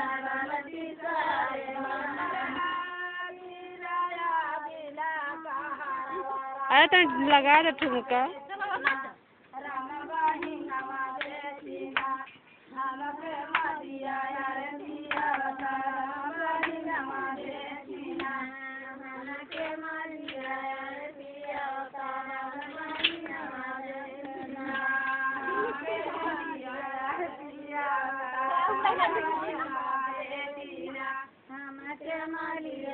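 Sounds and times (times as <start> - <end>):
women singing folk song: 0.0 - 32.9
hand claps: 7.1 - 8.0, 8.8 - 9.1, 10.2 - 11.4, 12.0 - 12.4, 13.5 - 13.7, 15.0 - 15.8, 16.6 - 16.8, 18.2 - 18.5, 19.5 - 20.7, 22.6 - 23.6.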